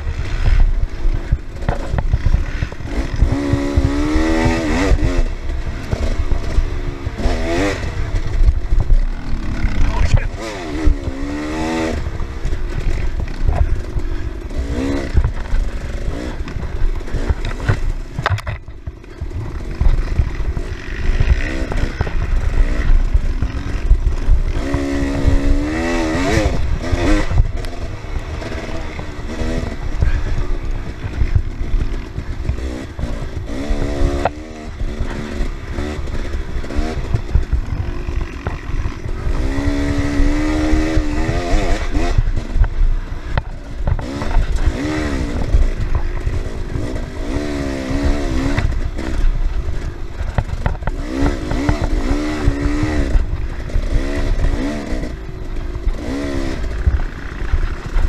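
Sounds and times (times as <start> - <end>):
dirt bike engine revving: 0.0 - 58.0
wind rumble: 0.0 - 58.0
bike knocks and clatter: 16.4 - 27.6, 50.2 - 54.8.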